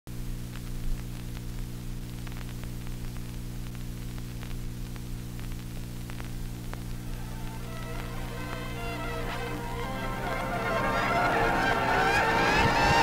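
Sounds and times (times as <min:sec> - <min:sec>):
electrical hum: 0:00.1 - 0:13.0
tape hiss: 0:00.1 - 0:13.0
faint clicks: 0:00.5 - 0:08.7.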